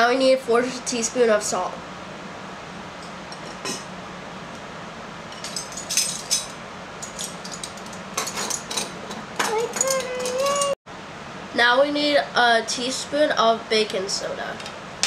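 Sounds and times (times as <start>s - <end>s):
metal spoons clinking: 5.4s - 10.8s.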